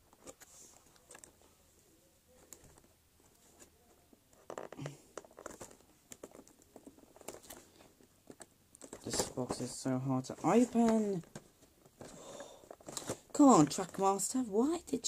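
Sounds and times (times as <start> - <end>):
cardboard box crinkling and tapping: 2.4 - 14.3.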